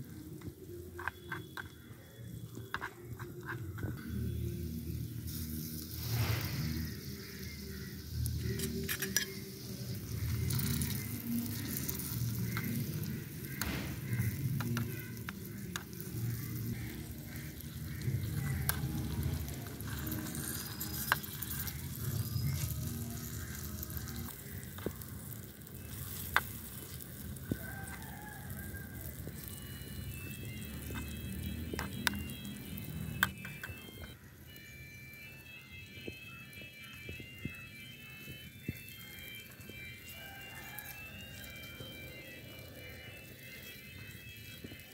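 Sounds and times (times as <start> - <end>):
frying sizzle: 0.0 - 44.9
spoon stirring in pan: 8.4 - 27.2.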